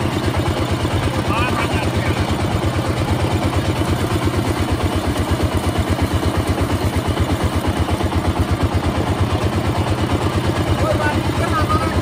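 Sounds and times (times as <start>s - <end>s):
juice crushing machine running: 0.0s - 12.0s.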